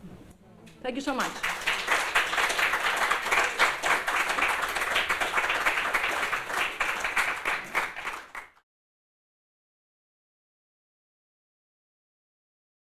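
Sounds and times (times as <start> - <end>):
audience applauding: 1.2 - 8.6.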